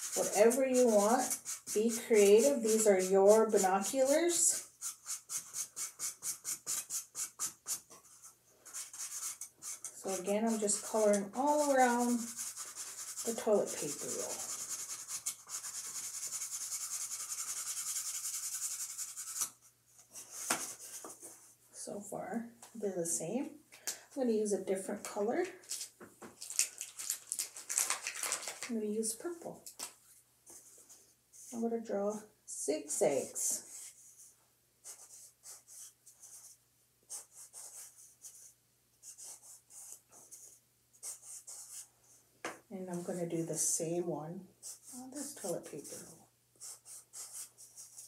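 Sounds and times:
marker scratching on cardboard: 0.0s - 19.6s, 20.2s - 21.5s, 33.1s - 41.9s, 44.6s - 48.0s.

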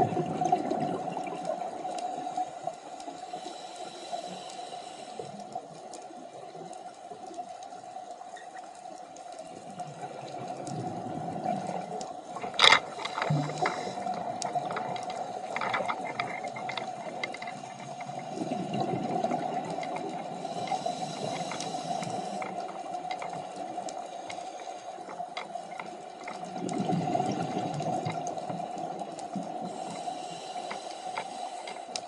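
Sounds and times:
bubbles gurgling underwater: 0.0s - 1.9s, 9.7s - 12.6s, 18.2s - 20.5s, 26.4s - 29.6s
regulator hiss: 2.1s - 5.4s, 20.2s - 22.8s, 29.6s - 32.0s.

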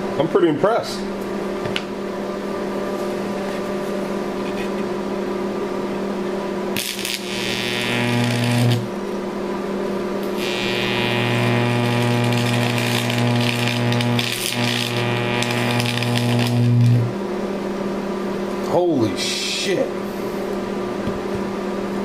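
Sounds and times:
arc welder humming: 6.7s - 9.2s, 9.8s - 18.0s
electric arc buzzing and crackling: 6.8s - 9.0s, 10.2s - 17.2s.

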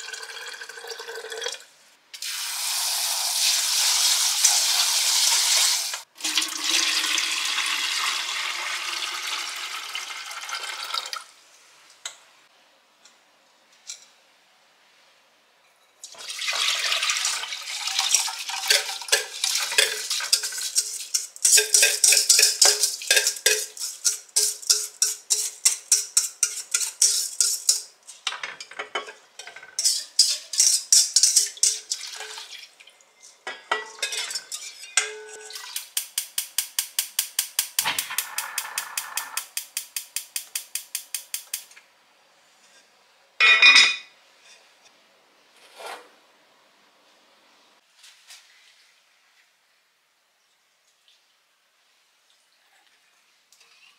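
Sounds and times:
liquid poured into a pot: 6.2s - 11.3s, 16.1s - 24.9s, 31.2s - 32.9s
metal utensil stirring in pot: 18.1s - 32.5s, 33.4s - 36.4s.

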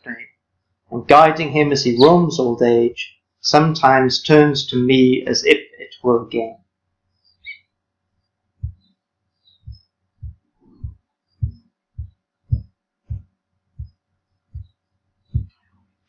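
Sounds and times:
low dull thumps: 8.6s - 8.9s, 9.6s - 15.6s.

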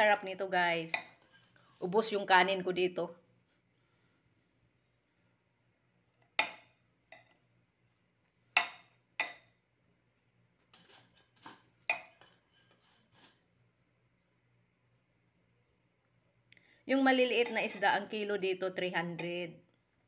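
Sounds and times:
metal spoon clinking against pot: 11.9s - 12.4s.

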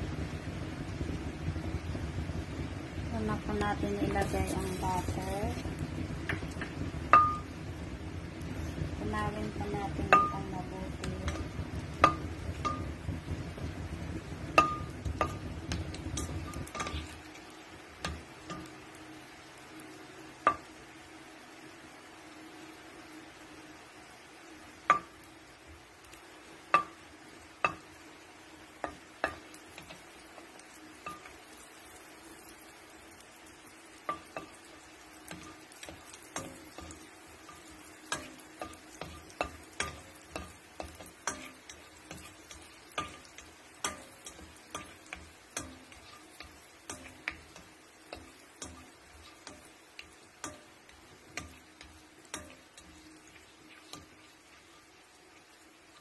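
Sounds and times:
low hum: 0.0s - 19.0s
butter clicking and popping in pan: 4.7s - 8.4s, 9.4s - 20.8s, 24.8s - 56.0s.

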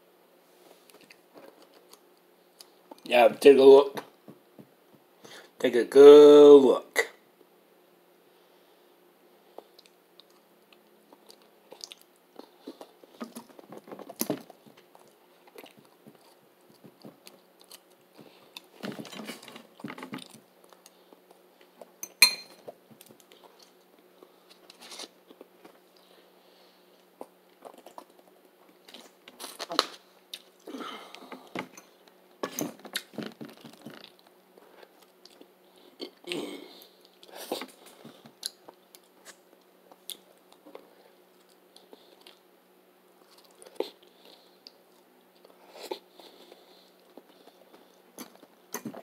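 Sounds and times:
person chewing: 0.8s - 3.0s, 9.6s - 22.0s, 27.0s - 32.1s, 32.9s - 42.4s, 43.2s - 49.0s.

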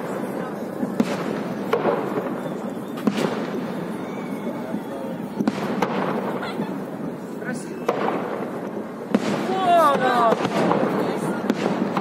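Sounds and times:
continuous background din: 0.0s - 12.0s
firework shells bursting: 5.4s - 12.0s.

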